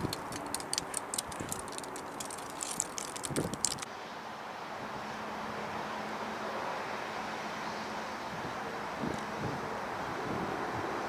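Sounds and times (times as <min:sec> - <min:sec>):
rapid irregular clicks: 0:00.0 - 0:03.9.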